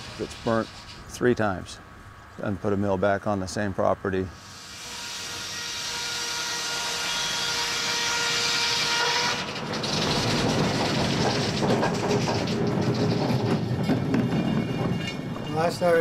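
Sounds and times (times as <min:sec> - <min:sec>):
sawmill machinery whine: 0:04.4 - 0:16.0
board rattling on rollers: 0:09.3 - 0:16.0.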